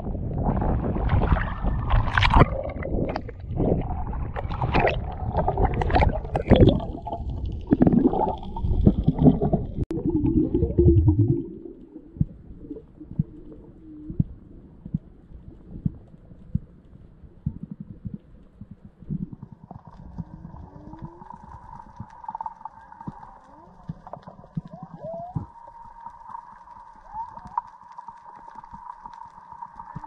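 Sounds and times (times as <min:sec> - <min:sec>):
sea water splashing: 0:00.0 - 0:14.6.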